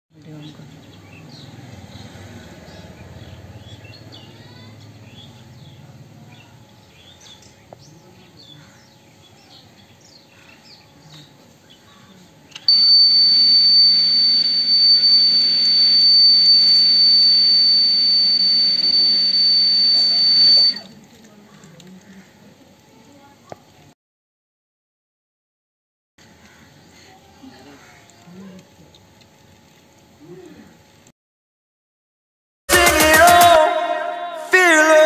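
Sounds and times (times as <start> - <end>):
high-pitched buzzer tone: 12.7 - 20.9
water pump humming: 12.7 - 20.9.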